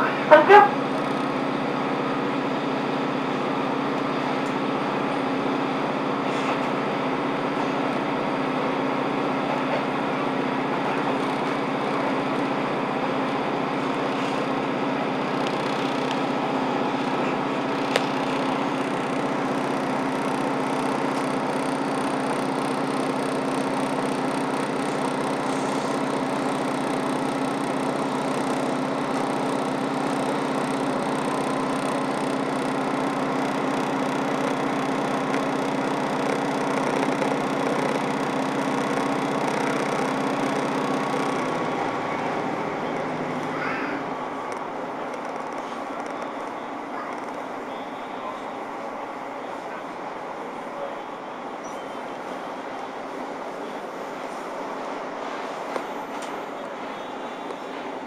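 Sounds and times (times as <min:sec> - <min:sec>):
train engine hum: 0:00.0 - 0:58.0
wheels rushing on rails: 0:00.0 - 0:58.0.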